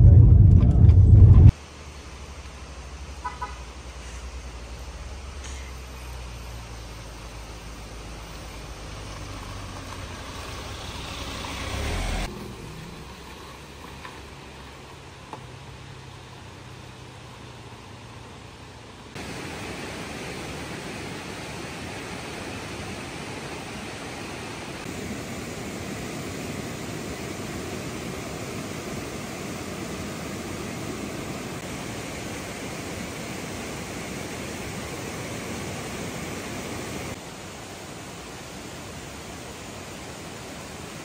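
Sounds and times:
river water rushing over rocks: 0:19.2 - 0:41.0.

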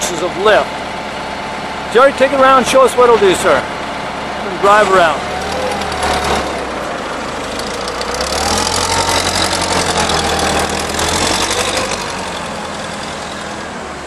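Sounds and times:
forklift engine running: 0:00.0 - 0:14.0.

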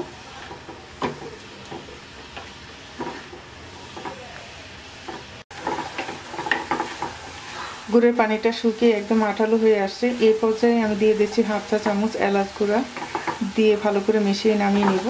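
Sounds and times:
wooden spatula scraping a wok: 0:00.0 - 0:08.1, 0:10.0 - 0:15.0
steady sizzle: 0:00.0 - 0:15.0.

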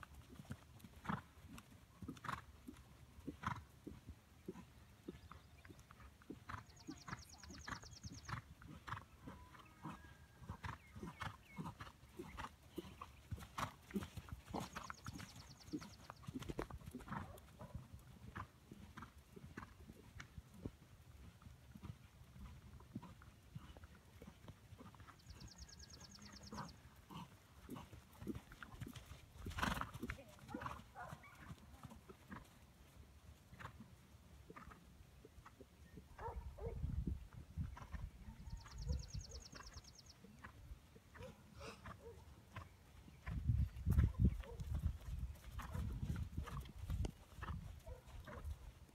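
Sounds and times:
horse hooves thudding on sand: 0:43.2 - 0:48.6.

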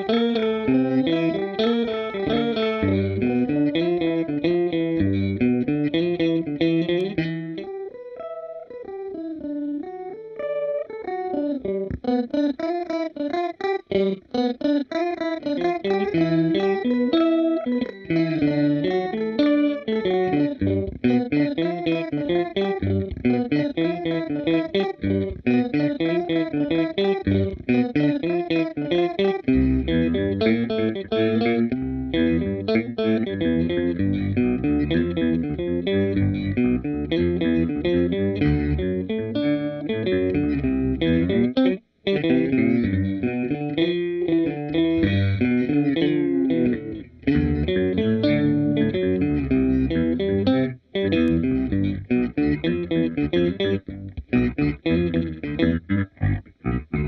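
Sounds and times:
electric guitar riff: 0:00.0 - 0:57.0.

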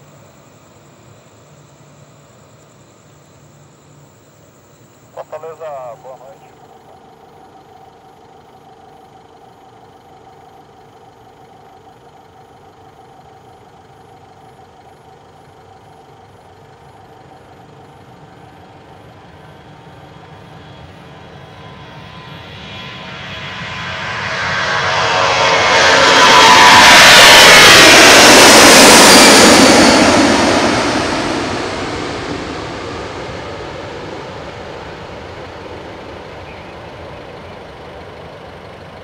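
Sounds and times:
jet engines droning at takeoff: 0:00.0 - 0:39.0.

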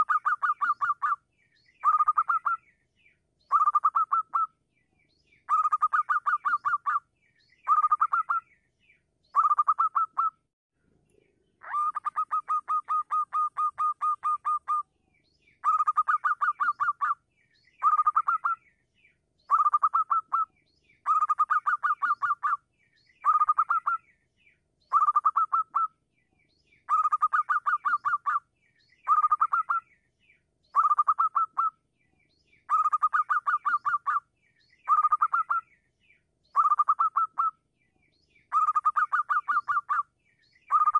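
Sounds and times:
dove cooing rapidly: 0:00.0 - 0:01.2, 0:05.5 - 0:07.0, 0:09.4 - 0:10.4, 0:11.6 - 0:14.8, 0:15.6 - 0:17.2, 0:19.5 - 0:22.6, 0:26.9 - 0:28.4, 0:30.8 - 0:31.7, 0:32.7 - 0:34.2, 0:34.9 - 0:35.6, 0:36.6 - 0:37.5, 0:38.5 - 0:40.0.

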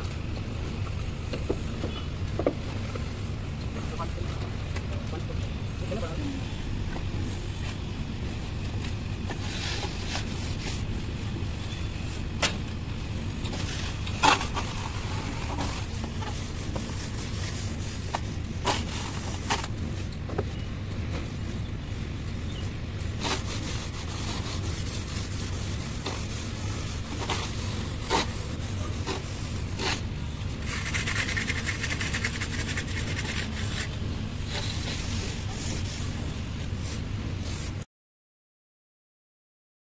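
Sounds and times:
float scraping wet plaster: 0:23.2 - 0:36.0.

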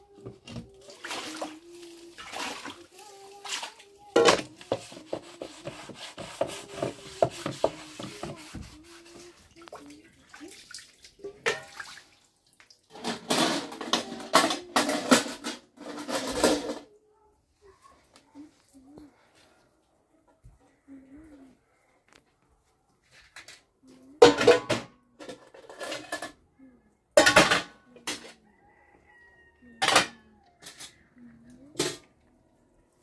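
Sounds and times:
water running and splashing: 0:00.7 - 0:03.9, 0:04.7 - 0:13.2.

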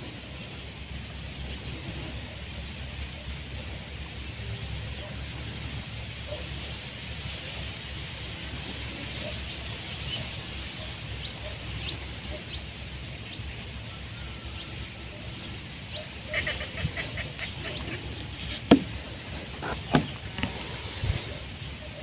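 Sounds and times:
low wind rumble: 0:11.1 - 0:22.0
faint bird calls: 0:14.1 - 0:22.0.

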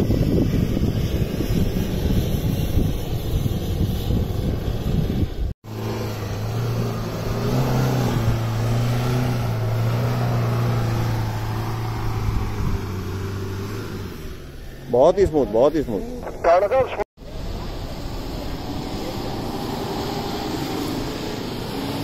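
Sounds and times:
wind buffeting microphone: 0:00.0 - 0:05.5, 0:07.2 - 0:13.6
engine labouring at high revs: 0:00.0 - 0:22.0.

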